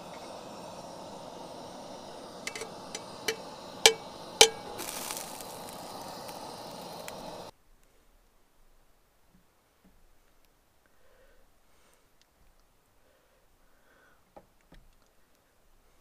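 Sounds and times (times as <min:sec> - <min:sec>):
steady rushing noise: 0:00.0 - 0:07.5
scraping hiss: 0:00.0 - 0:07.6
metal cookware clinking: 0:02.5 - 0:02.7, 0:03.3 - 0:04.8.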